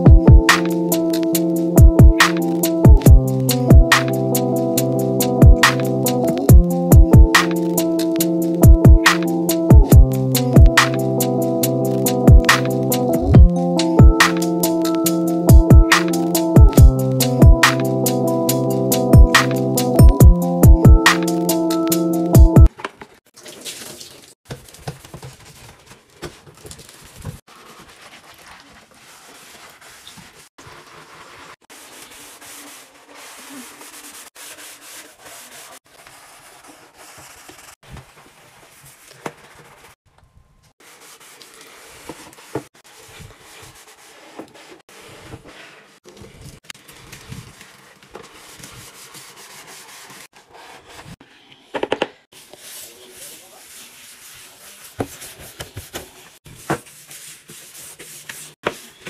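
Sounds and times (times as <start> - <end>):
brush swishing in soapy water: 27.4 - 40.0, 40.8 - 51.2, 52.3 - 58.6
sponge scrubbing hard surface: 27.4 - 40.0, 40.8 - 51.2, 52.3 - 59.0.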